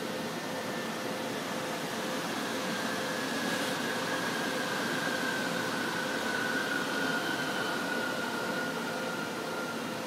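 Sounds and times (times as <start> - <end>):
electric train whine: 0.0 - 10.0
train rail rumble and hiss: 0.0 - 10.0.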